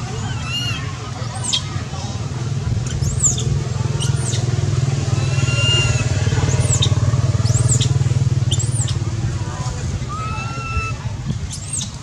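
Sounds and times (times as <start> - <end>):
small engine running: 3.0 - 9.9.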